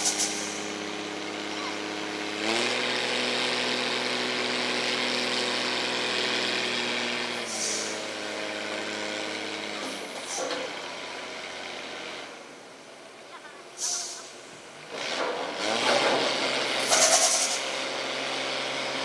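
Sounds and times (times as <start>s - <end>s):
air brake hisses: 0.0s - 0.8s, 7.4s - 8.0s, 13.8s - 14.4s, 16.8s - 17.7s
diesel truck engine revving: 0.0s - 12.7s, 14.0s - 19.0s
steady air hiss: 13.8s - 14.6s.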